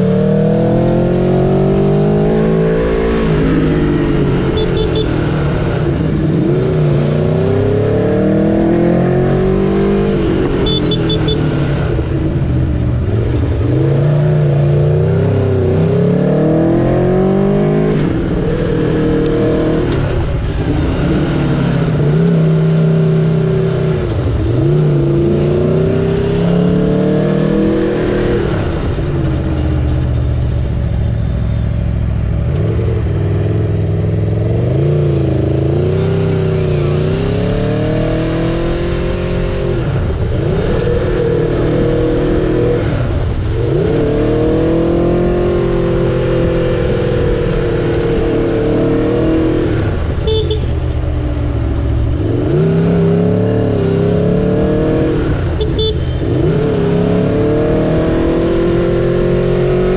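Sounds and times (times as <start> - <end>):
motorcycle engine revving: 0.0 - 31.1, 32.0 - 59.9.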